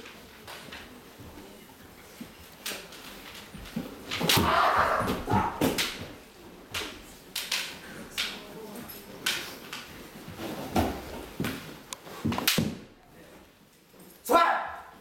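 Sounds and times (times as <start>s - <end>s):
bamboo swords clacking: 2.6s - 10.1s, 12.3s - 12.8s
feet stamping on wooden floor: 3.6s - 6.2s
person shouting: 14.3s - 14.9s.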